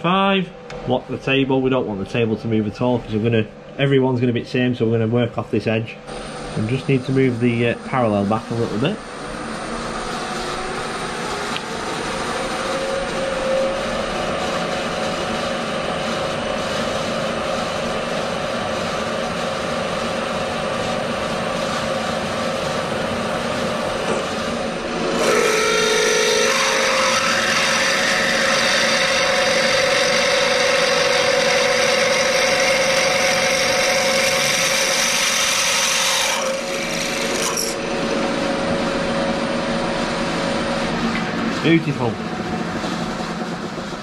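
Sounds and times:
milling machine spindle running: 0:05.1 - 0:44.0
drill bit cutting steel: 0:24.1 - 0:38.0.

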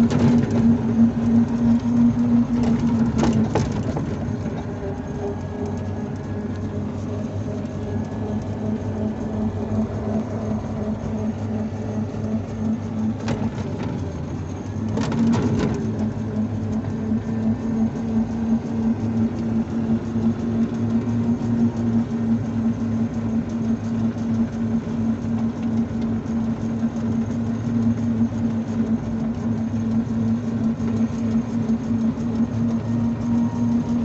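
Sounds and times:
electric motor humming: 0:00.0 - 0:34.0
road and wind rumble: 0:00.0 - 0:34.0.

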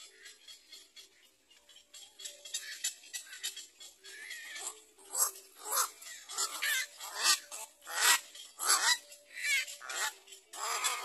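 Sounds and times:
herons harsh rasping calls: 0:02.4 - 0:11.0.

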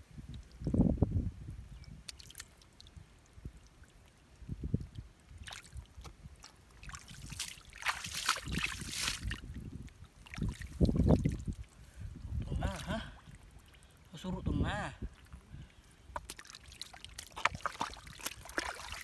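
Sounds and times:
hands splashing in muddy water: 0:02.0 - 0:02.6, 0:05.4 - 0:09.5, 0:10.2 - 0:11.7, 0:16.1 - 0:19.0.

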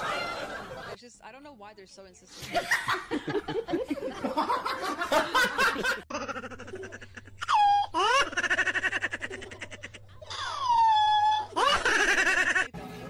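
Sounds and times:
person laughing: 0:02.5 - 0:12.7.

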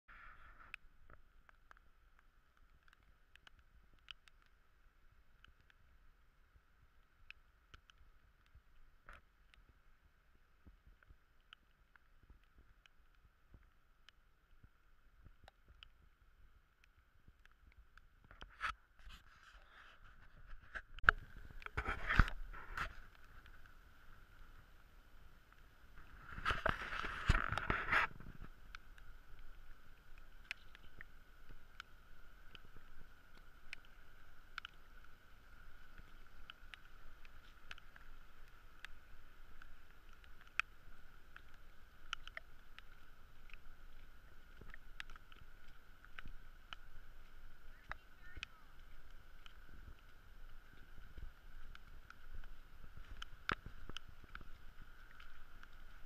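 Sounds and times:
raindrops ticking on camera housing: 0:00.2 - 0:56.0
steady hiss: 0:20.4 - 0:56.0.

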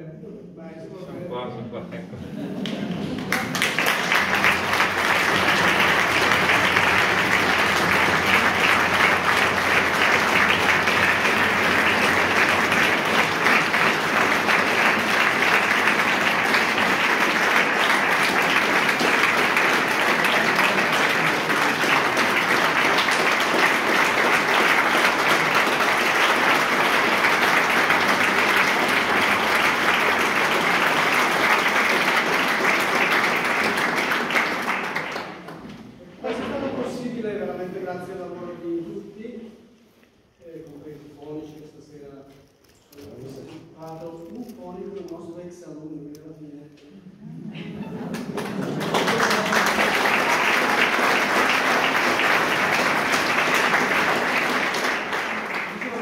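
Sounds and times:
audience applause: 0:02.4 - 0:36.0, 0:47.2 - 0:56.0.

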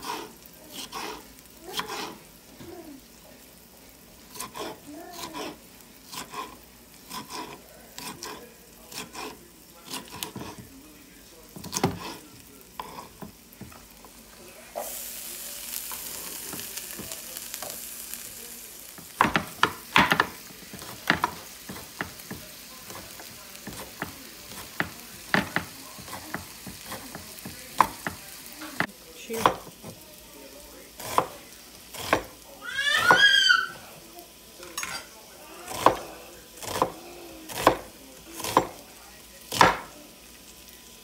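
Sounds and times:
knife chopping on wooden board: 0:00.0 - 0:02.2, 0:04.3 - 0:10.6, 0:11.6 - 0:12.2, 0:19.0 - 0:28.2, 0:31.0 - 0:32.3, 0:36.6 - 0:38.8, 0:39.5 - 0:39.9
peppers sizzling in a pan: 0:00.0 - 0:41.0.

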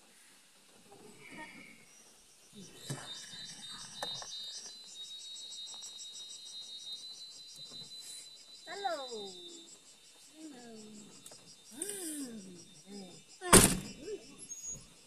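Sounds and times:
constant high whine: 0:00.0 - 0:15.0
insects chirping: 0:00.0 - 0:15.0.

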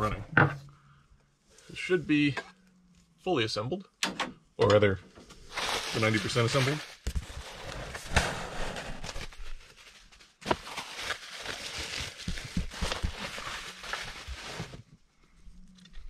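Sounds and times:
bubble wrap rustling and crinkling: 0:05.3 - 0:15.0.

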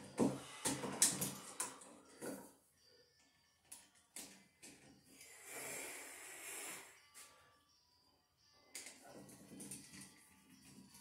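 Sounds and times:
breathy hiss: 0:05.1 - 0:07.5.

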